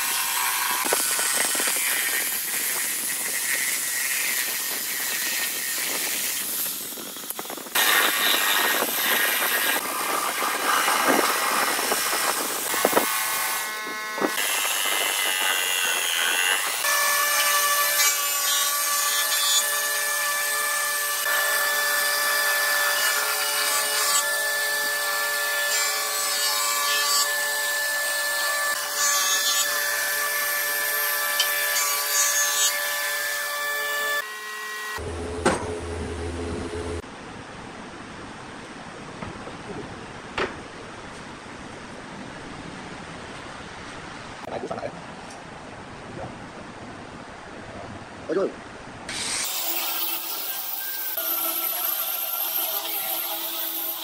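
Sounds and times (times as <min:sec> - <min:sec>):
jigsaw cutting wood: 0:00.0 - 0:06.9, 0:07.7 - 0:35.2, 0:49.1 - 0:54.0.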